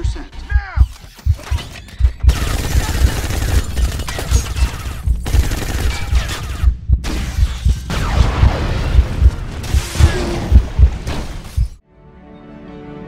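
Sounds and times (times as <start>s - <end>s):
automatic gunfire: 2.3s - 4.4s
pulsing low thump: 5.0s - 11.8s.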